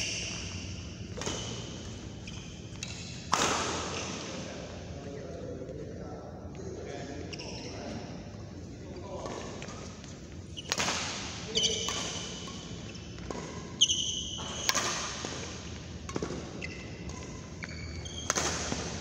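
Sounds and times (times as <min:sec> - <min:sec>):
shoes squeaking on floor: 0:00.0 - 0:03.2, 0:07.1 - 0:08.1, 0:09.6 - 0:15.5, 0:16.2 - 0:19.0
racquet striking shuttlecock: 0:00.0 - 0:03.8, 0:10.7 - 0:11.2, 0:14.4 - 0:17.4, 0:18.2 - 0:19.0.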